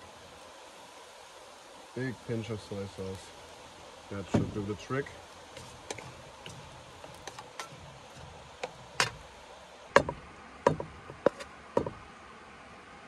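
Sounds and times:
spoon scraping frying pan: 5.5 - 9.4, 10.7 - 11.9
spoon knocking against pan: 10.0 - 12.0.

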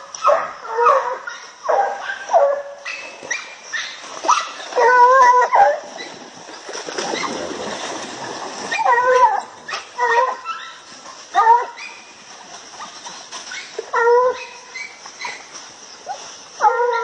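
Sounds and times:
hounds baying: 0.2 - 6.2
splashing water: 3.0 - 16.6.

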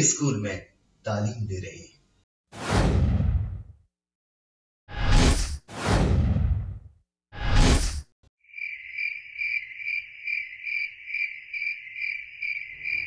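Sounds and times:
short whoosh sweep: 4.9 - 8.1
crickets chirping: 8.4 - 13.0.

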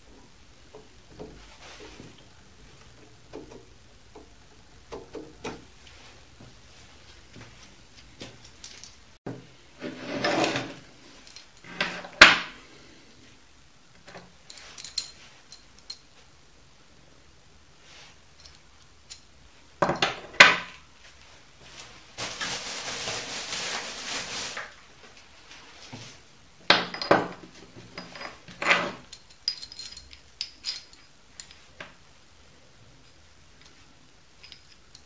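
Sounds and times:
metal rattling scrape: 9.8 - 10.9
small metal parts clicking: 29.1 - 31.7.

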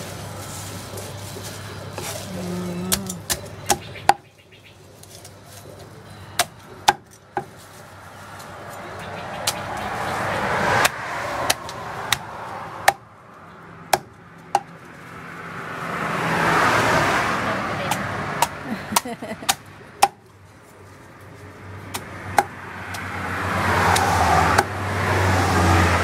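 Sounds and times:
rushing background noise: 0.0 - 26.0
cleaver chopping on wooden block: 6.4 - 7.5, 13.9 - 14.7, 17.9 - 20.2.

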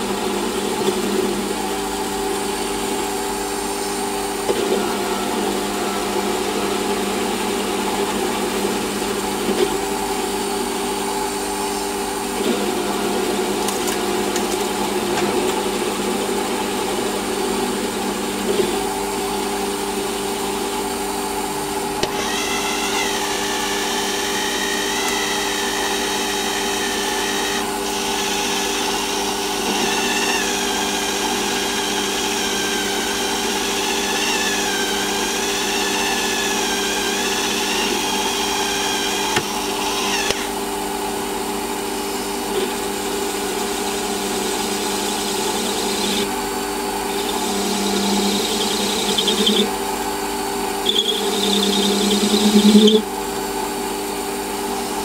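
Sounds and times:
metal lathe cutting: 0.0 - 55.0
wavering high squeal: 4.6 - 7.8, 47.1 - 49.8, 50.8 - 53.1.

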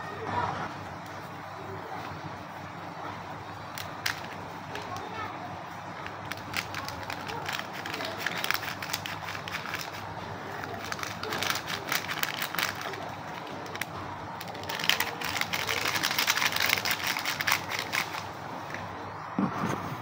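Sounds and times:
foil sachet crinkling: 6.0 - 18.4.

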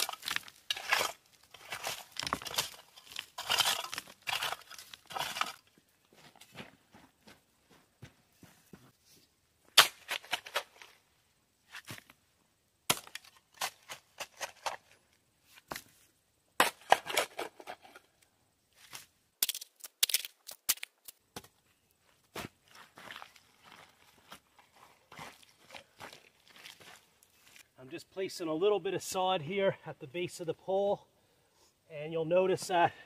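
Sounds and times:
hand tool scraping soil: 0.0 - 5.8, 12.9 - 15.7, 16.6 - 18.1.

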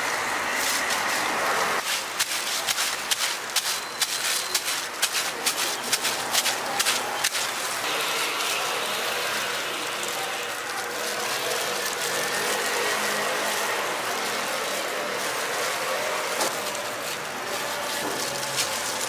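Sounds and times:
steady cooking hiss: 0.0 - 19.0
utensils clicking and tapping: 0.6 - 19.0.

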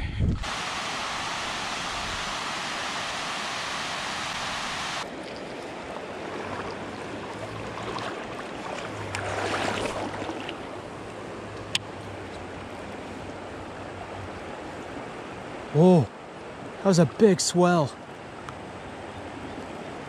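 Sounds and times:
rush of wind and water: 0.0 - 20.0
water splashing and lapping: 0.4 - 15.4.

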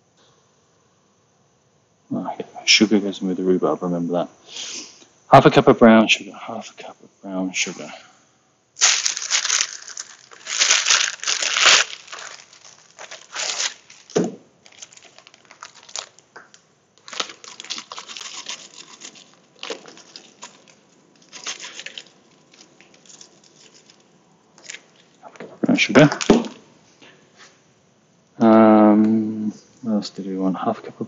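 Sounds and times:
plastic bag crinkling: 8.8 - 25.3.

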